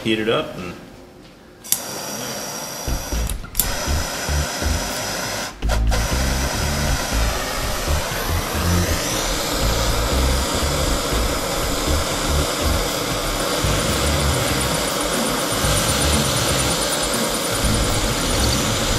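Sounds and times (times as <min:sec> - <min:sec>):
propane torch hissing: 0:01.7 - 0:18.9.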